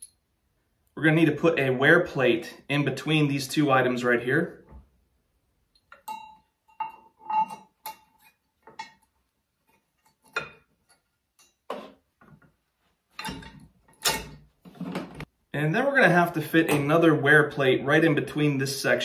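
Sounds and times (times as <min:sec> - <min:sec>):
metal bolts clinking: 0:05.8 - 0:09.2, 0:13.1 - 0:14.5.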